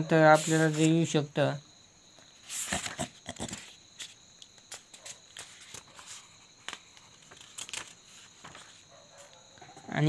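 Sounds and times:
high insect chirring: 0:00.0 - 0:10.0
paper pages turning: 0:00.4 - 0:00.9, 0:02.5 - 0:08.8.

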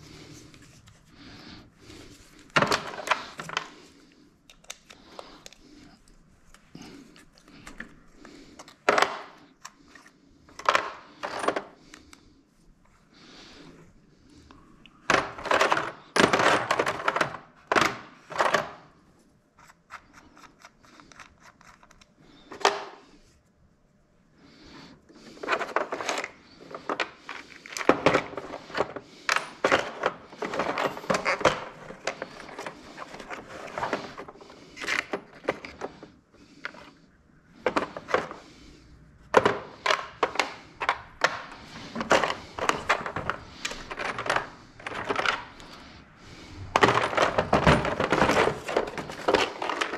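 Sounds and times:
hard objects clicking and knocking: 0:02.4 - 0:03.8, 0:06.5 - 0:09.8, 0:14.9 - 0:18.9, 0:25.4 - 0:36.0, 0:37.6 - 0:38.5, 0:39.2 - 0:45.9, 0:46.6 - 0:49.9.

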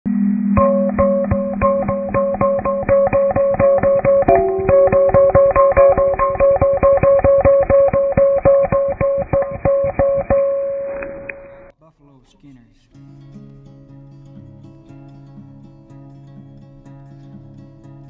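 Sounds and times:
picked guitar notes: 0:00.6 - 0:11.7.

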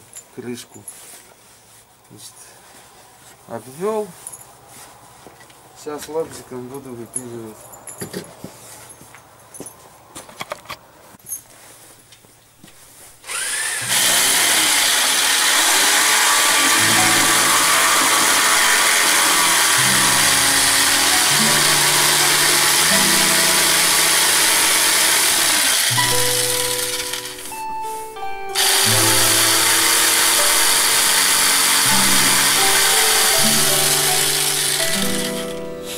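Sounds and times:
electric jigsaw cutting wood: 0:13.2 - 0:27.6, 0:28.5 - 0:35.9.

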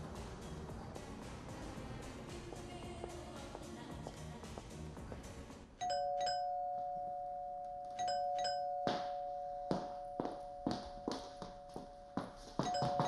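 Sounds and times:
soft background music: 0:00.0 - 0:06.5
two-tone doorbell chime: 0:05.8 - 0:13.0
footsteps on a hard floor: 0:08.9 - 0:13.0.

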